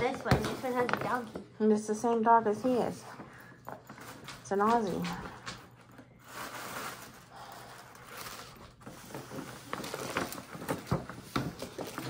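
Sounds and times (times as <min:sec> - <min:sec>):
wrapping paper rustling: 0:05.7 - 0:12.0.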